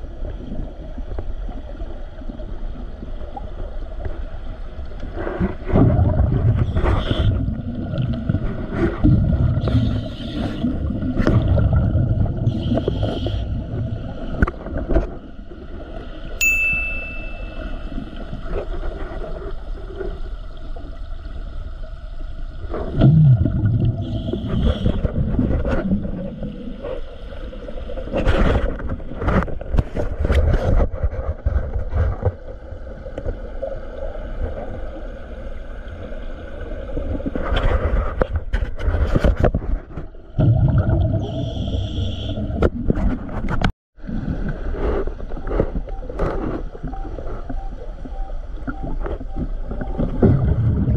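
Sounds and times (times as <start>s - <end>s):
steady low underwater background: 0.0s - 50.9s
bubbling exhalation: 22.9s - 24.1s, 40.4s - 41.8s.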